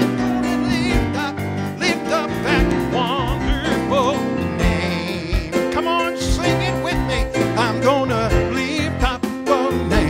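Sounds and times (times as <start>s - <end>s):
keyboard accompaniment: 0.0s - 10.0s
man singing gospel song: 0.0s - 10.0s
steady drum beat: 0.0s - 10.0s.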